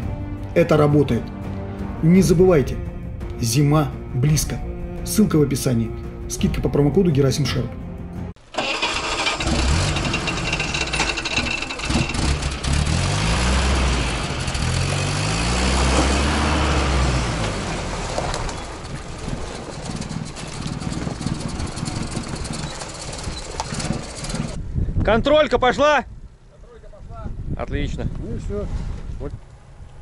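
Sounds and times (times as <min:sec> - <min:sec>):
van engine revving under load: 0:08.6 - 0:24.6.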